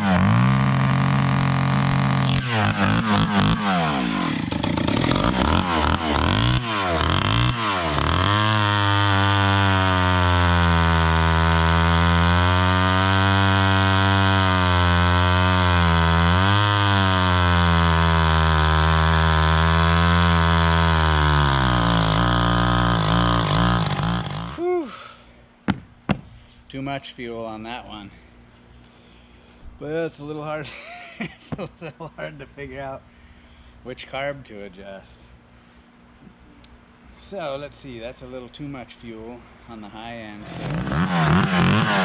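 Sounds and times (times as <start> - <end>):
chainsaw revving and cutting: 0.0 - 24.6, 40.4 - 42.0.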